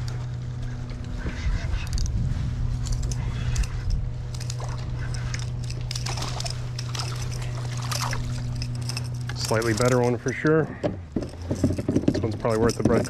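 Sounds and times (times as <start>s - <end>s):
steady low hum: 0.0s - 13.0s
fishing reel cranking: 2.8s - 10.6s.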